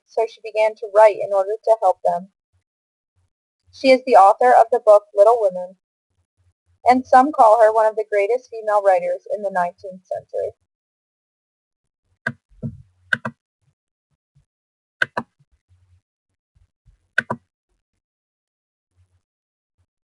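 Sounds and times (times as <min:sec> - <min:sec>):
computer mouse clicks: 0:12.3 - 0:13.4, 0:15.0 - 0:15.4, 0:17.2 - 0:17.5.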